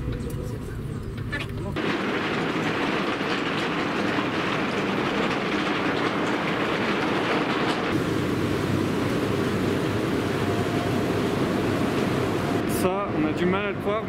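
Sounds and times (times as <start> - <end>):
ball mill clattering: 1.8 - 8.0.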